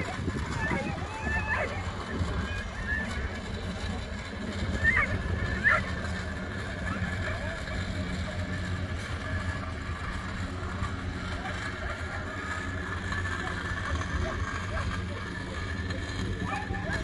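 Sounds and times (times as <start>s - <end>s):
motor humming: 0.0s - 17.0s
high dog yelps: 4.8s - 5.9s.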